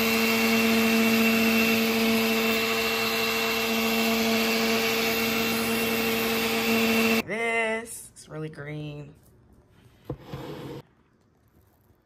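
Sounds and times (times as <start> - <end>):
blender motor humming: 0.0 - 7.2.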